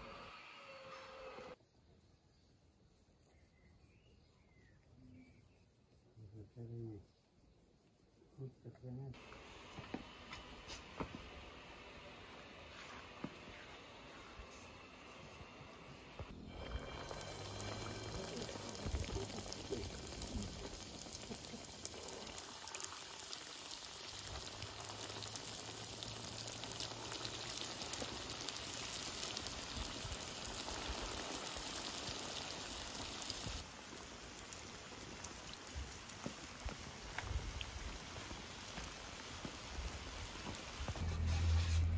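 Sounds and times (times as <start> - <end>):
hot oil sizzling and popping: 9.1 - 41.9.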